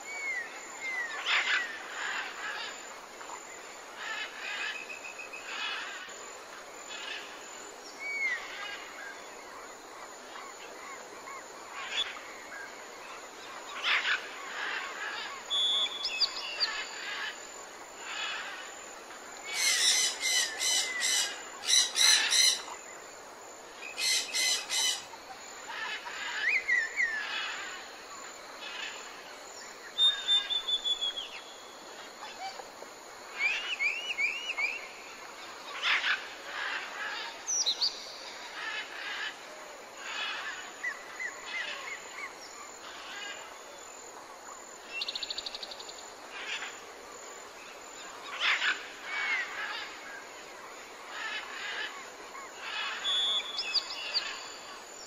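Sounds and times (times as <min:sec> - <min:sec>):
background hiss: 0:00.0 - 0:55.0
bird whistles and trills: 0:30.0 - 0:31.3.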